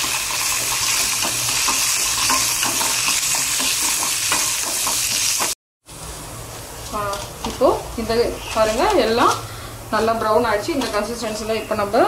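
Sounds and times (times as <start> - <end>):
lentils sizzling in hot oil: 0.0 - 5.6
spoon scraping metal pan: 0.5 - 5.6.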